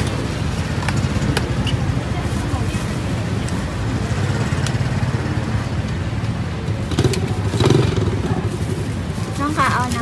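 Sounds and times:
motorbike engine running: 6.6s - 9.0s.

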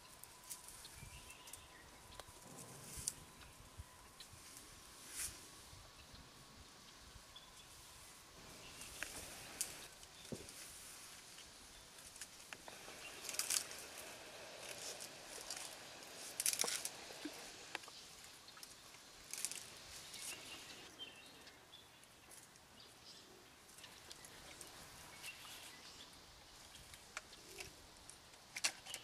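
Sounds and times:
dry grass and branches crackling: 0.0s - 29.0s
faint outdoor background: 0.0s - 29.0s
small snaps of branches: 8.7s - 20.5s.

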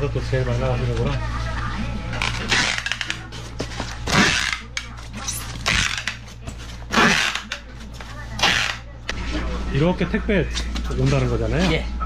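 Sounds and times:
packing tape ripping off dispenser: 2.2s - 3.2s, 4.0s - 7.7s, 8.4s - 8.9s.

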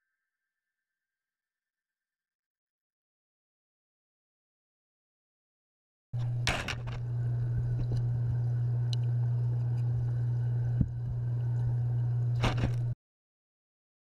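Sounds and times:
steady low hum: 6.2s - 13.0s.

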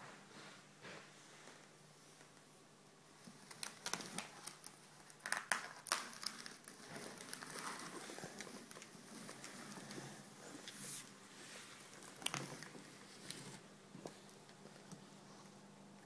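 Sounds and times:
wicker basket crackling and creaking: 3.2s - 15.5s
soft rustling: 6.1s - 15.6s.

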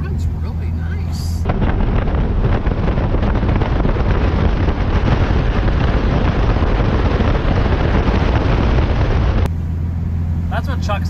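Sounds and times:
wind buffeting microphone: 0.0s - 9.5s.

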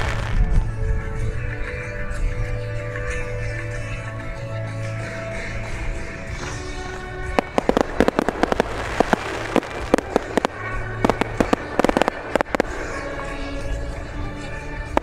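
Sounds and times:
fireworks bangs and crackles: 0.0s - 0.8s, 5.2s - 15.0s
music: 0.0s - 15.0s.

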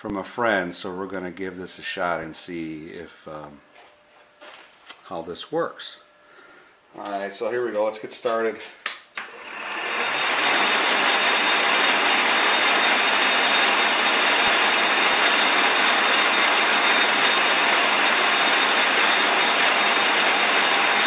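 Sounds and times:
metal lathe cutting: 9.2s - 21.0s.

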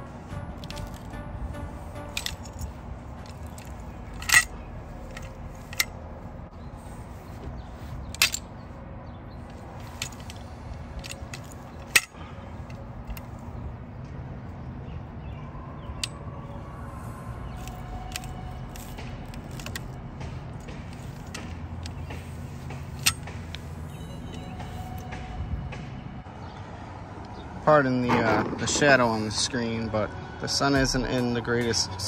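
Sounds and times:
chain and handles clinking: 0.0s - 8.8s, 9.4s - 13.6s, 17.5s - 25.3s.

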